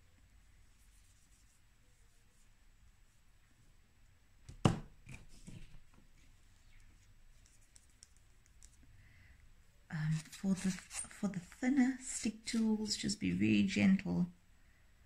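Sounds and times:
plastic tool knocking on table: 4.5 - 4.9
faint handling sounds: 5.0 - 9.0, 9.9 - 12.8.

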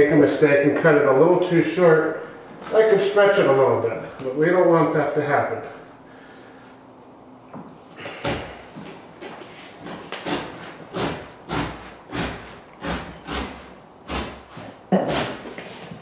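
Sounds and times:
utility knife cutting carpet: 9.8 - 15.9.

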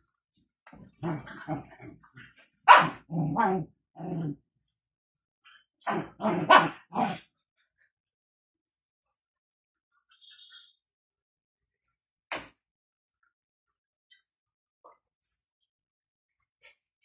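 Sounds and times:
dog barking: 2.6 - 3.6, 5.8 - 7.2.

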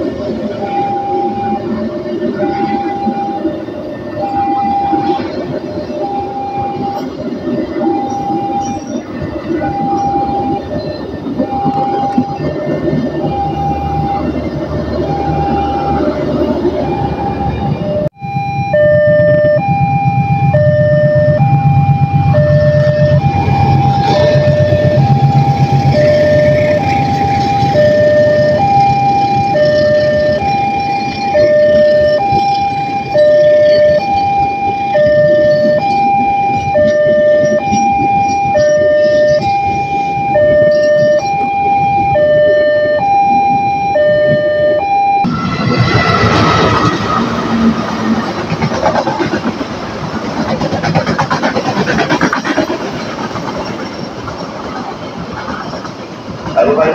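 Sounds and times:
passing train rumble: 0.0 - 56.9
crossing alarm two-tone ding-dong: 2.3 - 14.4, 15.0 - 45.3.

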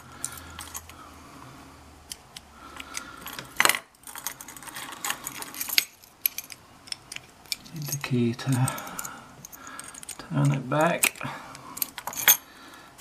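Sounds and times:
padlock and chain clinking: 0.2 - 0.9, 2.8 - 12.5
small metal clicks: 5.0 - 12.4.

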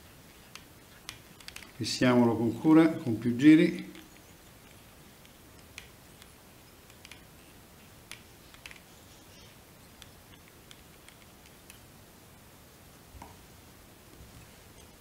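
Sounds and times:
low room hiss: 0.0 - 15.0
light clicks and ticks: 0.4 - 1.8, 3.8 - 7.3, 8.0 - 8.9.

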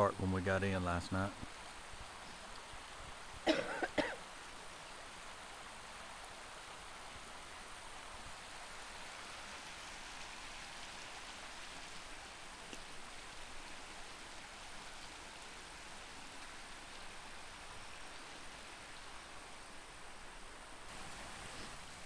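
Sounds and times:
creek running: 0.0 - 22.0
woman coughing: 3.5 - 4.2.

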